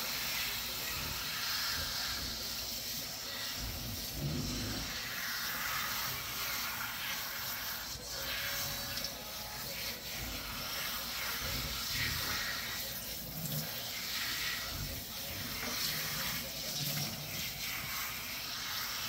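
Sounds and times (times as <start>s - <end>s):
faucet sprayer hissing: 0.0s - 19.0s.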